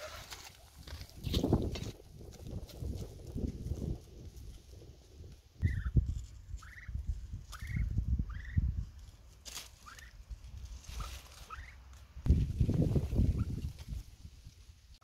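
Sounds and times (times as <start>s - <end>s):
duck peeping: 5.6s - 6.0s, 6.6s - 8.7s, 9.8s - 10.2s, 10.9s - 11.8s
thuds and rustling in grass: 12.3s - 14.6s.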